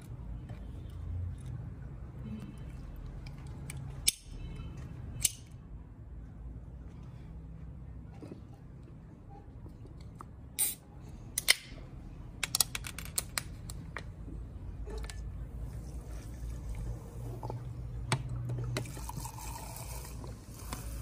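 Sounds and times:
soda pouring and fizzing: 0:16.0 - 0:21.0.

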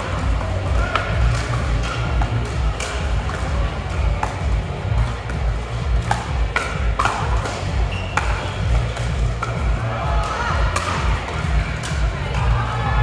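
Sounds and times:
music with pulsing beat: 0:00.0 - 0:13.0
paddles striking plastic ball: 0:04.1 - 0:12.0.

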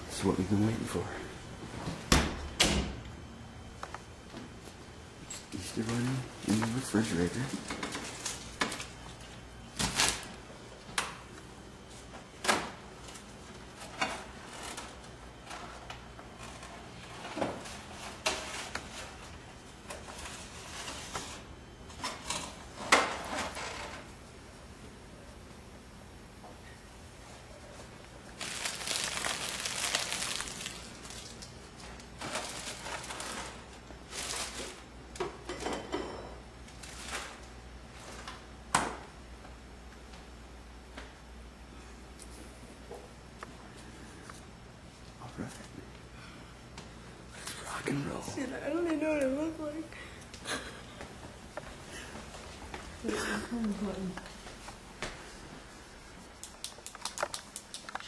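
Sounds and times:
rustling and crinkling: 0:27.7 - 0:34.9, 0:36.7 - 0:38.4.

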